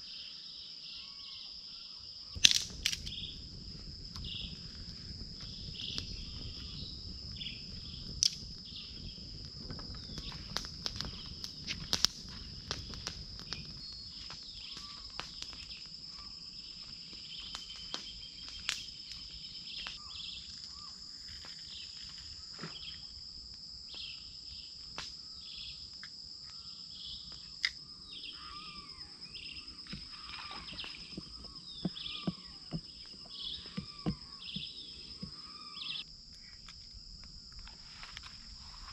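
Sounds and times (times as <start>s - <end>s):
high-pitched insect chorus: 0.0s - 38.9s
sharp clicks: 2.4s - 3.2s, 10.1s - 13.8s
birds chirping: 28.1s - 36.0s.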